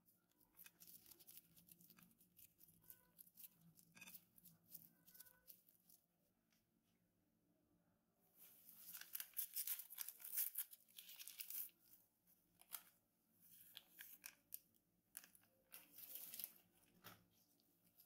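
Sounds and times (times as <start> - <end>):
sachet crinkling and tearing: 0.6 - 6.0, 8.7 - 11.8, 13.6 - 17.0.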